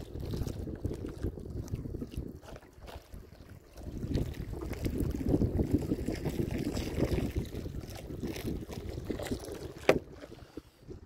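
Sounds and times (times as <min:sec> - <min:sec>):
water washing along hull: 0:00.0 - 0:11.0
wind buffeting microphone: 0:00.0 - 0:11.0.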